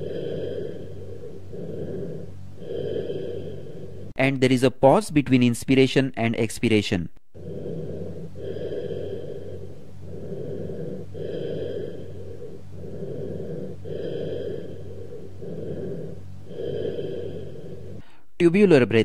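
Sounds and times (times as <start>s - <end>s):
hollow bronchial breathing: 0.0s - 4.2s, 7.3s - 18.4s
steady low hum: 0.0s - 19.0s.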